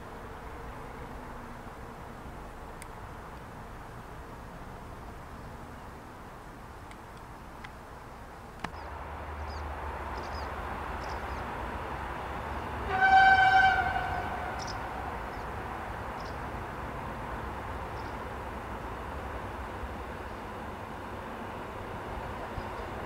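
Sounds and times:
low hum of train: 0.0s - 23.0s
train horn: 12.6s - 15.2s.

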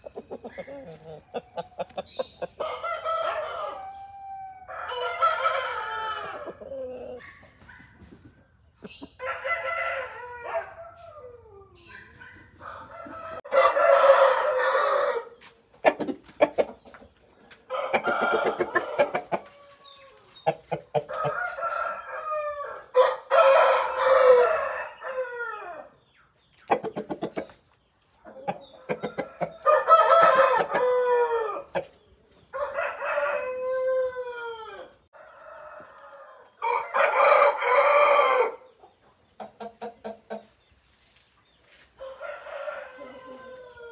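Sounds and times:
roosters crowing: 0.0s - 7.3s, 8.9s - 15.5s, 17.6s - 26.0s, 28.6s - 31.9s, 32.5s - 38.8s, 42.0s - 43.9s
chicken clucking: 0.0s - 10.3s, 10.9s - 25.2s, 26.4s - 43.9s.

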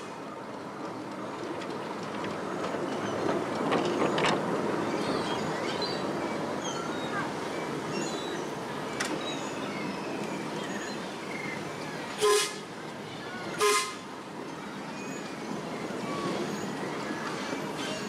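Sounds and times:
train running along track: 0.0s - 18.0s
steam locomotive whistle toots: 12.2s - 12.7s, 13.6s - 14.1s.

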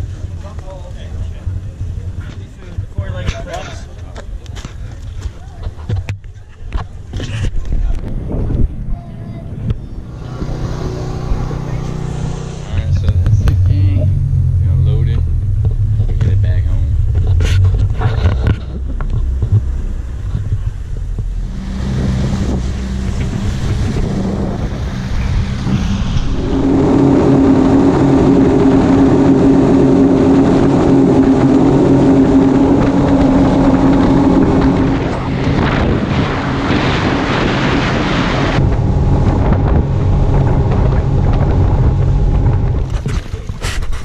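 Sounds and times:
outboard motor drone: 0.0s - 44.0s
wind on microphone: 4.7s - 44.0s
rushing water: 19.6s - 41.5s.

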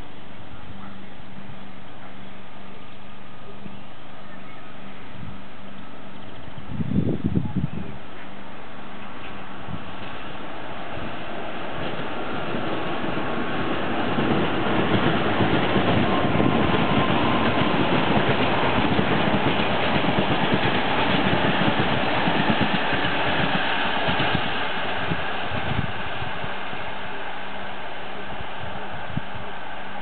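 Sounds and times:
train coaches rumbling past: 0.0s - 30.0s
train wheels clattering: 11.0s - 26.5s.

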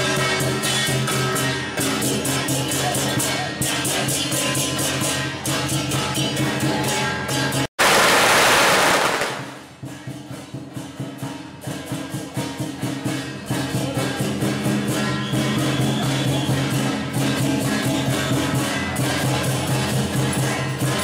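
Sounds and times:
hand cymbals clashing: 0.0s - 7.7s, 9.1s - 21.0s
firecrackers going off: 7.8s - 10.1s.

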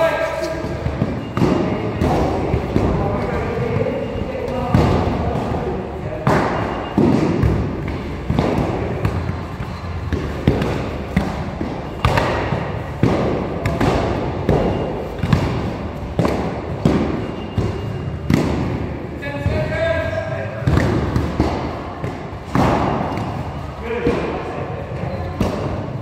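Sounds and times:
training weapons striking shields: 6.2s - 18.8s, 20.6s - 23.4s.

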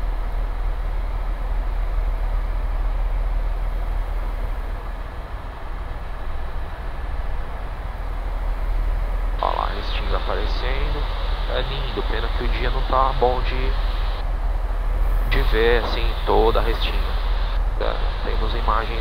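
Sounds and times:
engine and airflow hiss: 0.0s - 19.0s
helicopter rotor drone: 0.0s - 19.0s.

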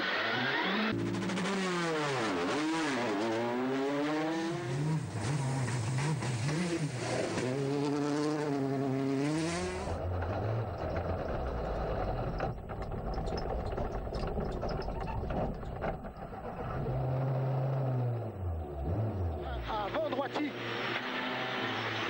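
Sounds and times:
rally car engine revving: 0.0s - 22.0s
engine knocks and rattles: 9.5s - 20.1s.

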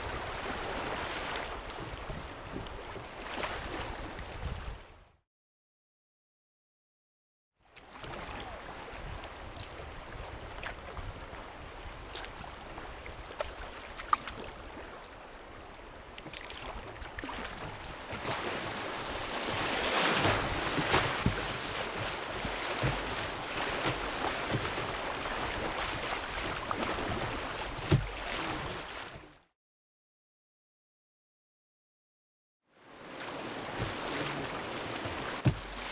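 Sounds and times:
river water rushing and splashing: 0.0s - 4.6s, 7.8s - 29.3s, 32.8s - 35.9s.

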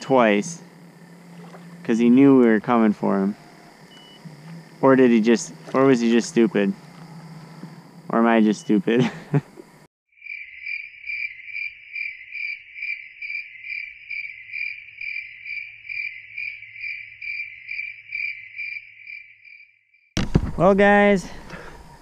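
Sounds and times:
cricket chirping: 0.0s - 20.1s.

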